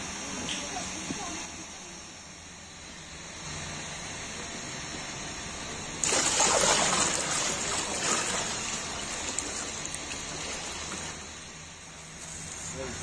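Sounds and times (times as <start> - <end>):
thick liquid pouring and splashing: 6.0 - 11.3.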